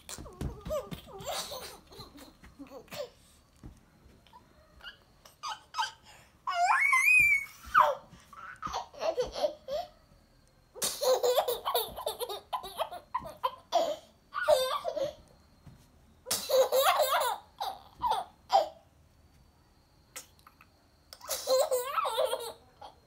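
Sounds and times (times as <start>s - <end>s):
small child giggling: 0.1s - 3.2s, 7.2s - 9.9s, 10.8s - 15.1s, 21.2s - 23.0s.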